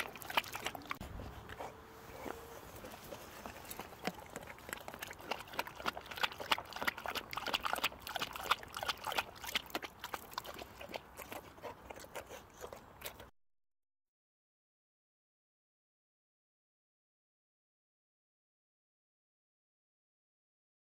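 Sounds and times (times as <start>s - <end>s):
dog lapping water: 0.0s - 13.3s.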